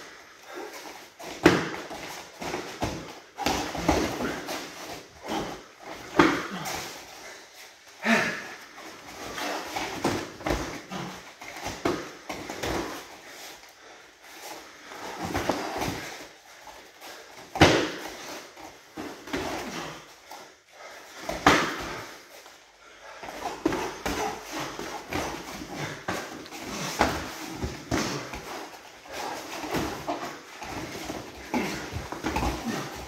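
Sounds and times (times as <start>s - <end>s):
feet shuffling on foam mats: 8.8s - 33.0s.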